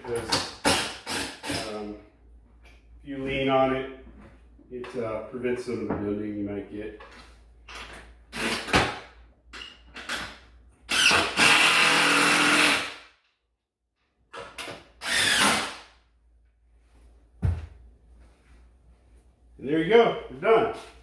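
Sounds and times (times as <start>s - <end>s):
power drill driving screws: 10.9s - 13.0s, 15.0s - 15.8s.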